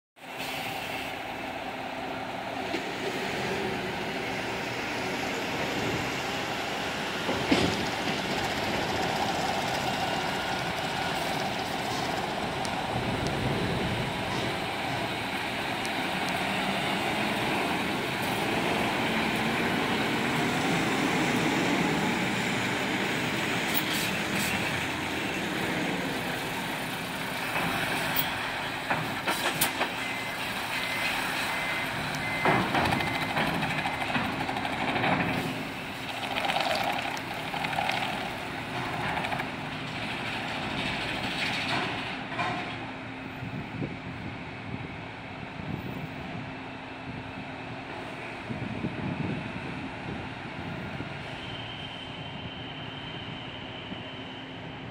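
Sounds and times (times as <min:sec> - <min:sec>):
short sharp hisses: 0:00.3 - 0:01.2.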